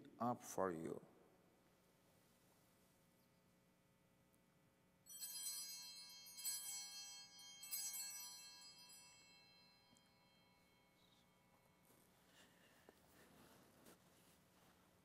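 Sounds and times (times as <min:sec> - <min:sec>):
cluster of small bells ringing: 0:05.1 - 0:11.8.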